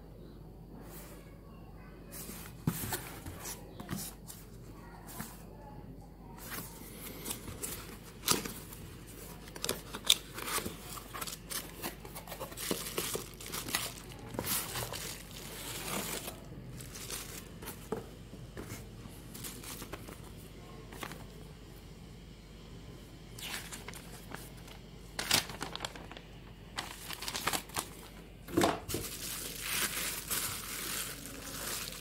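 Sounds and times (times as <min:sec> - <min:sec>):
bubble wrap crinkling: 0:06.4 - 0:21.3, 0:23.4 - 0:32.0
paper leaflet rustling: 0:23.5 - 0:28.2, 0:28.9 - 0:32.0.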